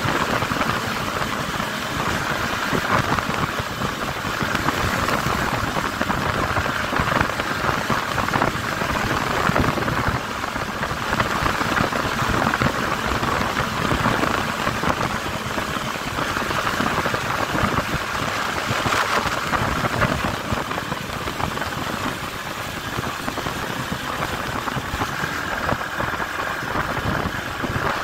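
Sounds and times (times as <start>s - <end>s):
motorcycle engine running: 0.0s - 28.0s
wind and road noise: 0.0s - 28.0s.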